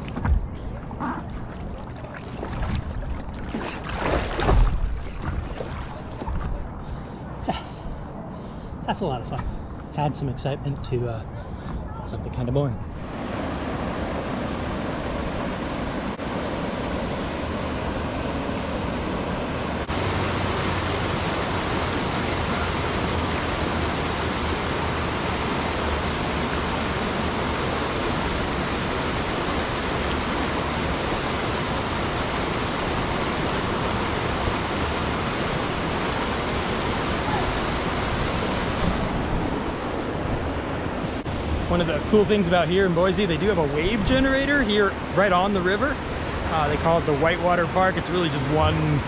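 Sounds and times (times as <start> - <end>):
river water rushing over concrete: 0.0 - 6.7, 12.9 - 49.0.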